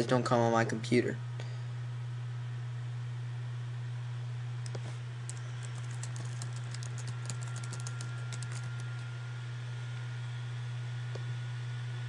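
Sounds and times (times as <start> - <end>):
steady low hum: 0.0 - 12.0
keyboard key clicks: 5.6 - 9.0.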